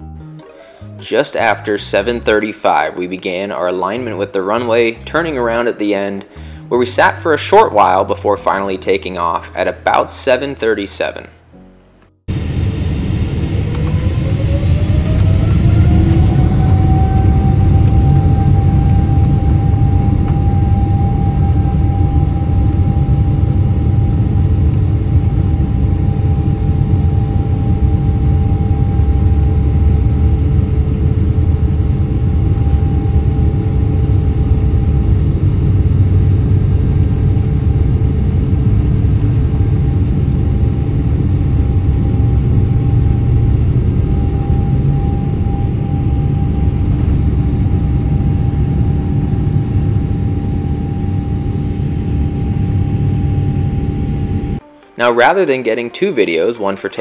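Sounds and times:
jet engines at takeoff power: 12.3s - 54.6s.

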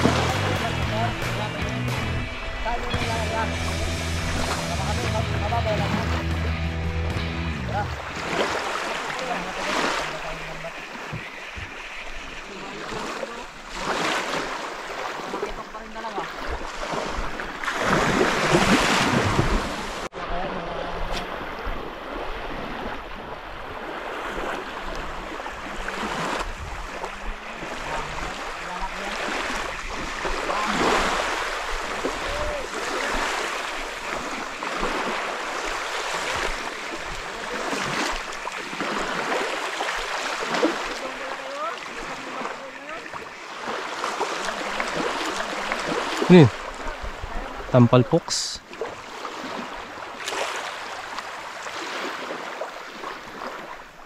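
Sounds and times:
small waves on sandy shore: 0.0s - 54.0s
wind on microphone: 16.5s - 28.4s.

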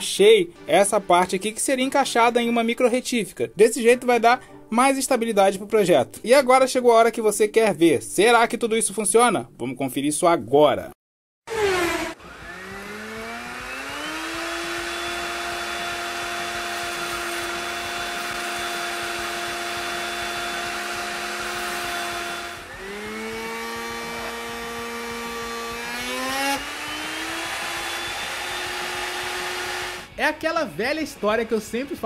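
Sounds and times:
rotary tool motor whine: 11.5s - 30.1s.

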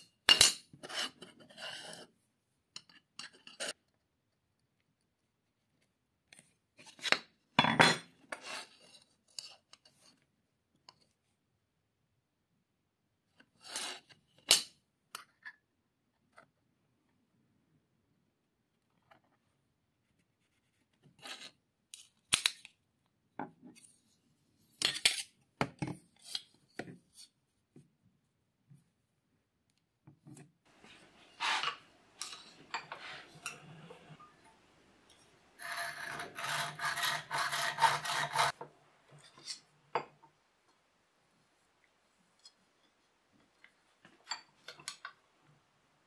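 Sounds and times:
hacksaw cutting metal: 35.6s - 38.6s.

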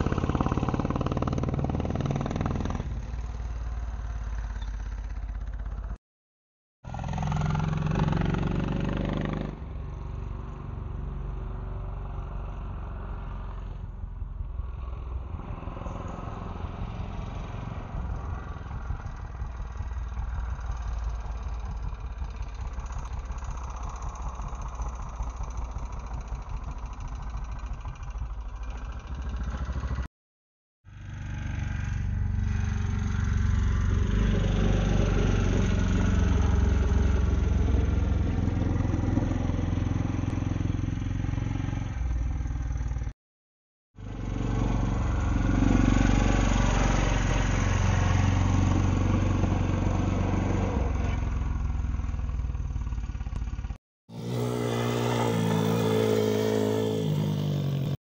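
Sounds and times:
small motorbike engine revving: 0.0s - 5.2s, 6.9s - 9.6s, 54.1s - 58.0s.

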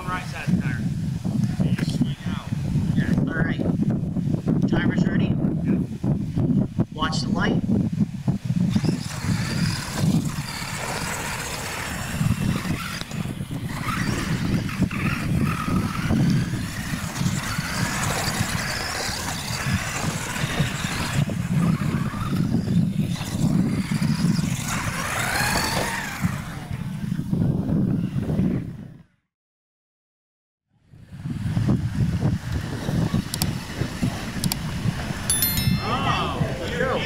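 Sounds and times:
rc truck motors whining: 8.3s - 27.3s.

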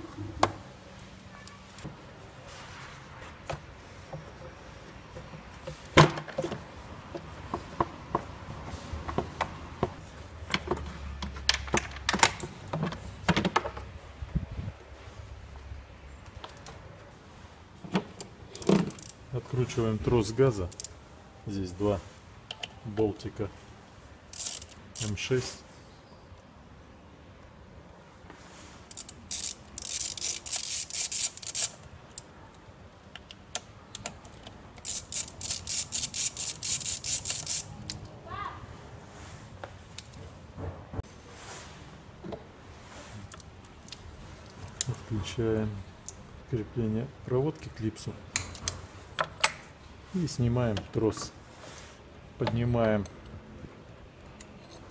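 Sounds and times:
socket ratchet clicking: 24.3s - 25.1s, 28.9s - 32.2s, 33.2s - 38.0s.

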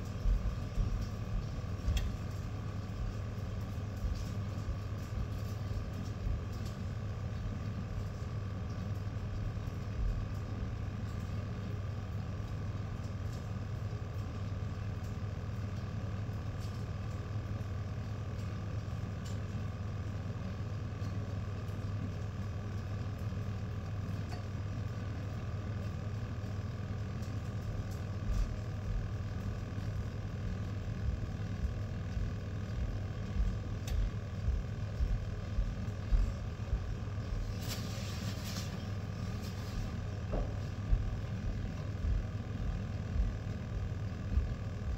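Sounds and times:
low mechanical hum: 0.0s - 44.9s.

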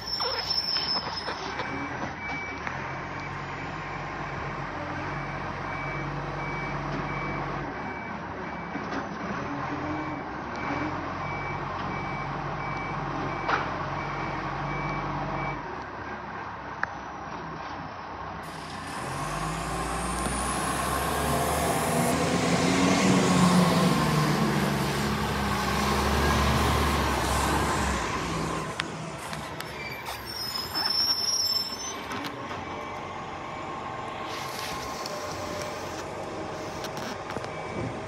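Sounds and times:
hiss: 18.4s - 19.8s
garbage truck diesel engine revving: 18.5s - 29.2s.

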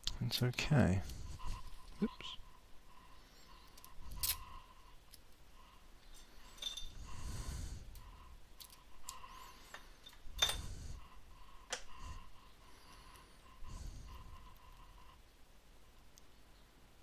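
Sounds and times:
small tools clicking and clinking: 6.1s - 7.0s, 8.6s - 10.7s.

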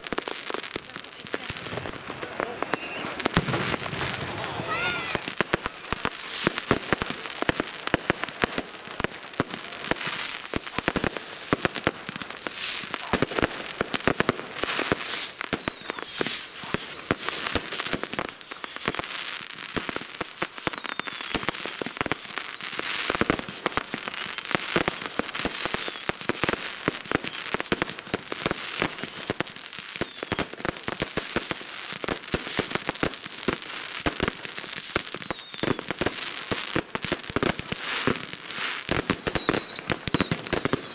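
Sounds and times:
fireworks bangs and crackling: 0.0s - 40.9s
firework whistles: 1.5s - 6.8s, 9.9s - 11.8s, 12.4s - 13.2s, 14.6s - 19.3s, 20.5s - 26.2s, 29.8s - 30.6s, 34.8s - 36.4s, 37.7s - 40.9s.

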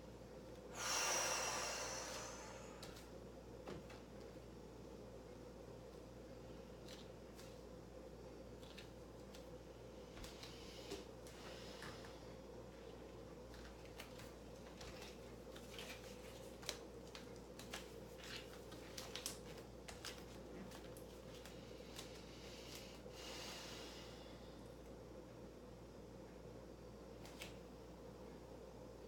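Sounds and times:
steady low hum: 0.0s - 29.0s
breathy exhale: 0.7s - 3.0s, 22.5s - 24.5s.

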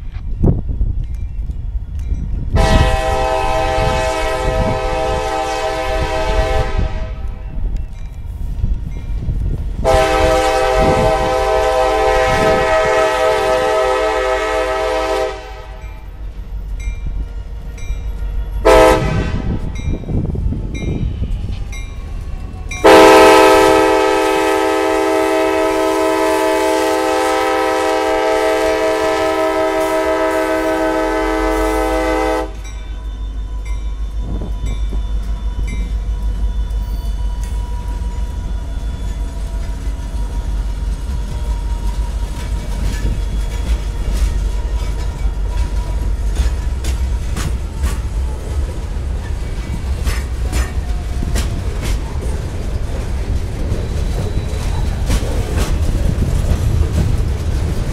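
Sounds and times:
locomotive horn blast: 2.6s - 7.4s, 9.8s - 15.8s, 18.4s - 19.7s, 22.8s - 35.4s.

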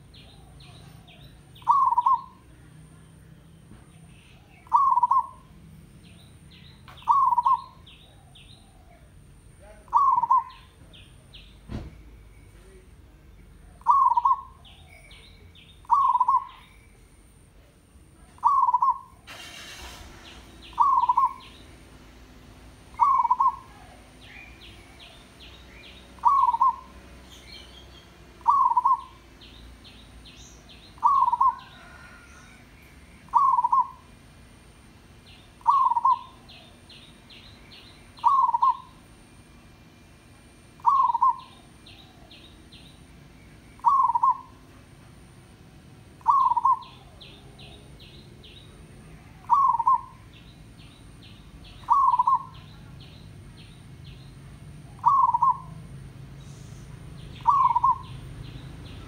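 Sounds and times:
dove cooing: 0.0s - 3.0s, 4.4s - 5.6s, 6.9s - 11.3s, 13.6s - 15.2s, 15.8s - 16.6s, 18.3s - 19.2s, 20.3s - 21.9s, 22.7s - 30.0s, 30.7s - 34.2s, 35.5s - 37.1s, 38.1s - 39.1s, 40.6s - 42.9s, 43.8s - 44.8s, 46.0s - 50.3s, 51.7s - 53.0s, 54.8s - 55.9s, 57.3s - 58.9s
small birds chirping: 0.0s - 59.0s
brief rush of noise: 19.2s - 21.0s.

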